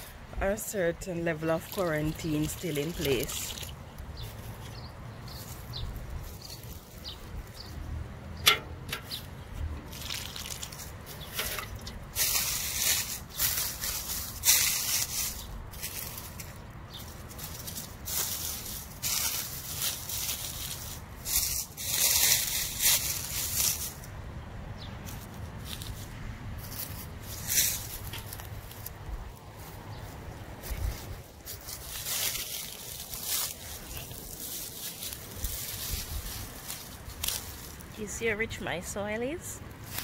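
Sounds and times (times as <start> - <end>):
dry leaves rustling and crackling: 0.0 - 40.0
water trickling: 1.3 - 3.9.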